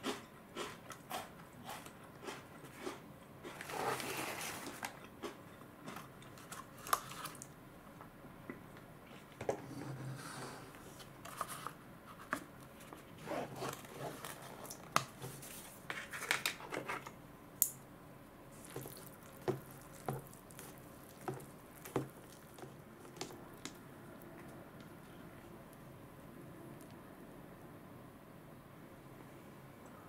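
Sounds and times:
chopsticks squishing through noodles: 0:18.5 - 0:23.8.

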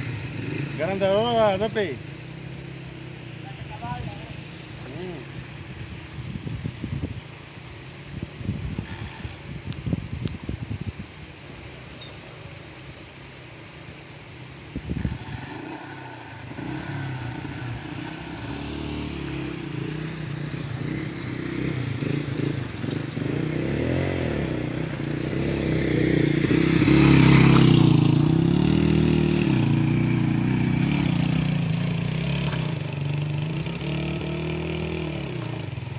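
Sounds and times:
vehicle engine revving: 0:14.8 - 0:35.9.

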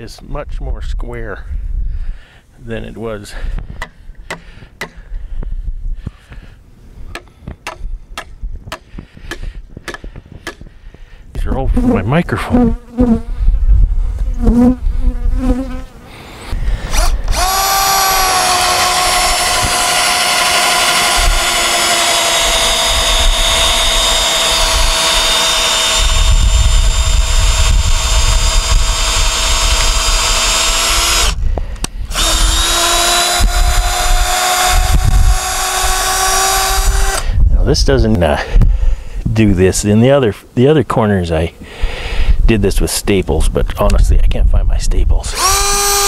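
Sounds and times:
bees buzzing: 0:14.3 - 0:16.5
cordless drill running: 0:16.9 - 0:31.4, 0:32.0 - 0:37.3, 0:45.3 - 0:46.0.

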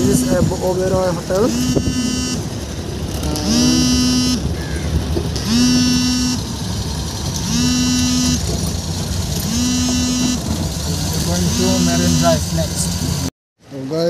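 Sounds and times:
car engine and road rumble: 0:00.0 - 0:14.0
loud electronic tone: 0:01.4 - 0:04.6, 0:05.4 - 0:06.6, 0:07.4 - 0:08.6, 0:09.4 - 0:13.3.

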